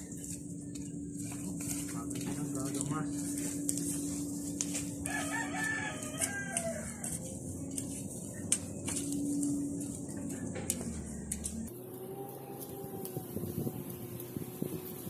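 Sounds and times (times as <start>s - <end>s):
rooster crowing: 4.8s - 7.4s.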